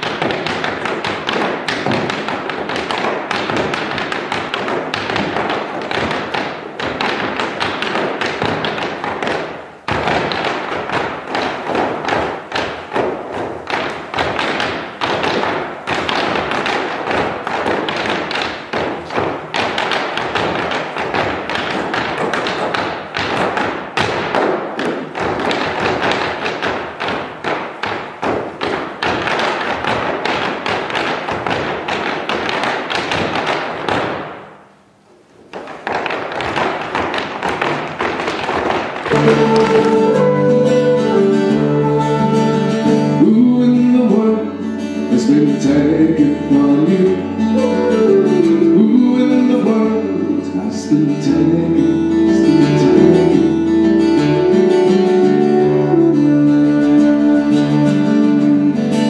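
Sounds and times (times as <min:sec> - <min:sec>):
hard shoes tapping on stage: 0:00.0 - 0:59.0.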